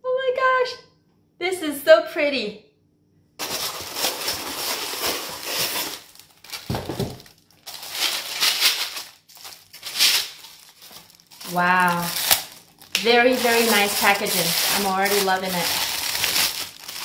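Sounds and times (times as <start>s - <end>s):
tissue paper crinkling: 3.4s - 17.0s.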